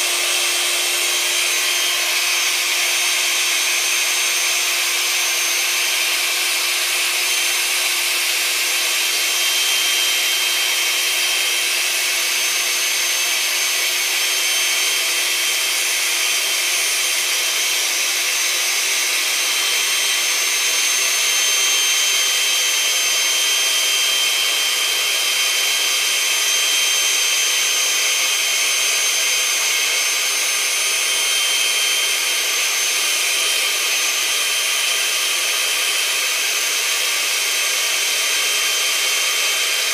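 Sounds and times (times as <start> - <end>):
electric pump motor whining: 0.0 - 39.9.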